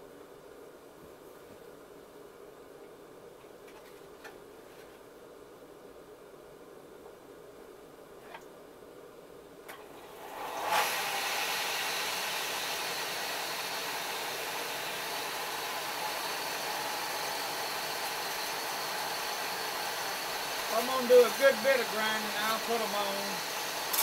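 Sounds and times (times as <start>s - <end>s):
belt grinder motor running: 10.2s - 24.0s.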